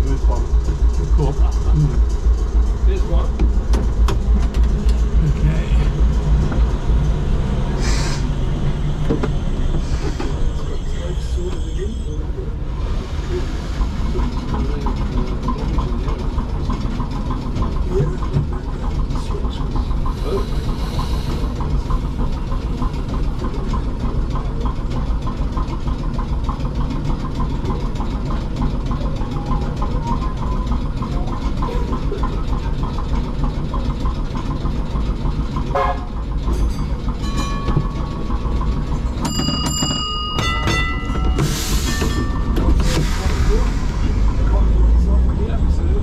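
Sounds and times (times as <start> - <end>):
tram low rumble: 0.0 - 46.0
burst of hiss: 7.8 - 8.2
brief squeal: 9.6 - 12.4
tram bell ringing: 35.8 - 42.8.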